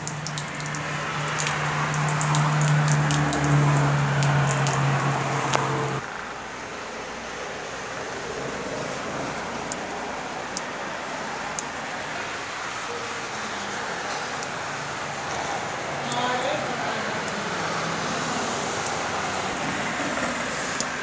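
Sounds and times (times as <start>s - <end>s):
electric water pump humming: 0.0s - 6.0s
water splashing on tiled floor: 0.0s - 6.0s.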